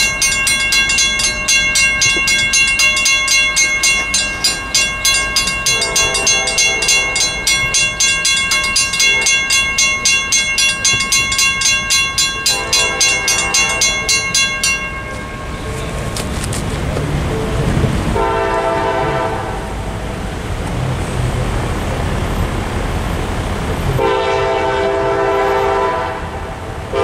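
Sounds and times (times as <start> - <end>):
mechanical crossing bells ringing: 0.0 - 16.2
distant train horn: 5.6 - 7.6, 12.4 - 14.3, 17.4 - 20.0, 24.0 - 27.0.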